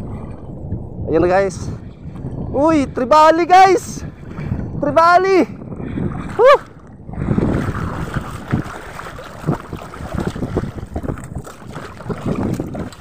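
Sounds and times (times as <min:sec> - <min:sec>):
wind buffeting microphone: 0:00.0 - 0:13.0
seawater splashing and sloshing: 0:03.8 - 0:13.0.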